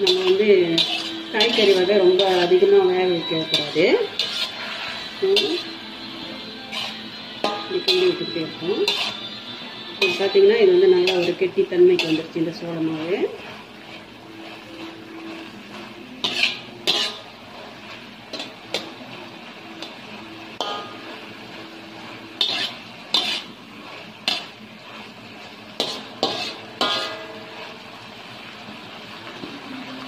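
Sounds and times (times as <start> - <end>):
spatula clanking against wok: 0.0 - 5.8, 6.7 - 10.4, 11.0 - 12.4, 16.2 - 17.3, 18.3 - 19.0, 20.6 - 21.2, 22.3 - 23.6, 24.2 - 24.6, 25.8 - 27.6
frying sizzle: 0.0 - 30.0.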